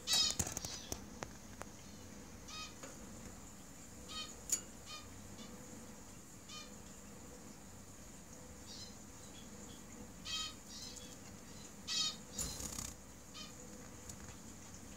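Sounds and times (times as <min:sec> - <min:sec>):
finches chirping: 0:01.8 - 0:02.8, 0:04.0 - 0:05.6, 0:08.7 - 0:13.6.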